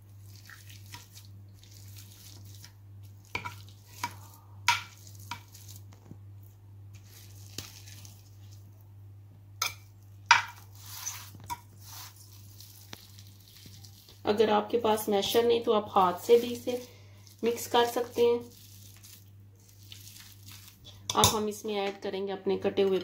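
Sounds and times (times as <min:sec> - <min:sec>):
soft mashing of potatoes: 0:00.0 - 0:14.3, 0:14.9 - 0:21.5.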